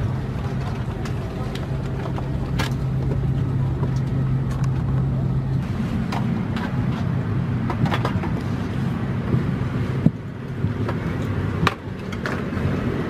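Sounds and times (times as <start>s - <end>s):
airliner cabin hum: 0.0s - 13.0s.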